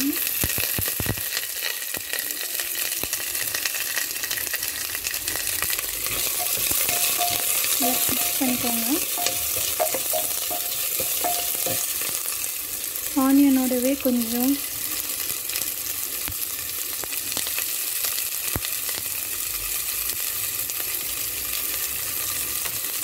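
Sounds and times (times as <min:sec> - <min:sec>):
onions sizzling in hot fat: 0:00.0 - 0:23.0
wooden spoon scraping a pot: 0:06.0 - 0:12.2
knocks on a pot: 0:06.2 - 0:12.0.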